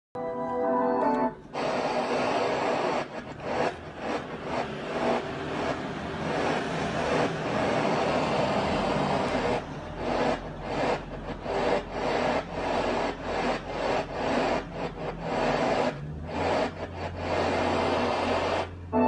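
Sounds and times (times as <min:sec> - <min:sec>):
radio static hiss: 0:01.5 - 0:05.8.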